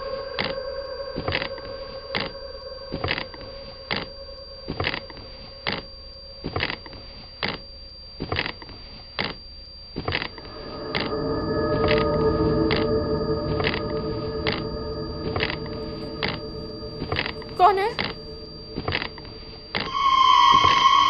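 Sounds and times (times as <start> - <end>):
held suspense drone: 10.3 - 21.0.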